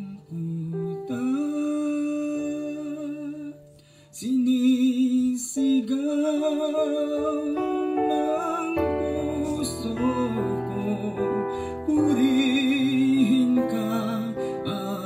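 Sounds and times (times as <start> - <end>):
man singing with vibrato: 0.0 - 15.0
soft instrumental backing: 0.0 - 15.0.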